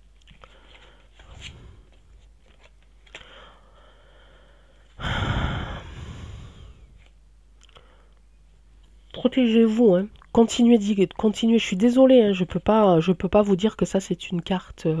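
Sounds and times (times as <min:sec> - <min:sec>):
woman sighing heavily: 0:05.0 - 0:06.8.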